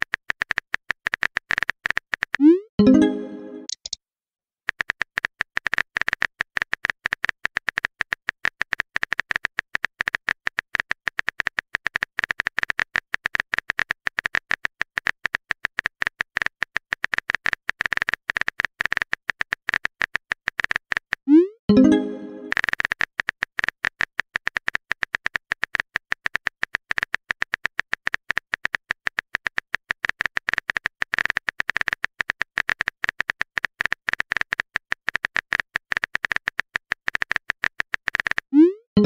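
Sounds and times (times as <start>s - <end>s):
keyboard typing sound effect: 0.4s - 4.0s, 21.3s - 23.0s, 37.1s - 39.0s.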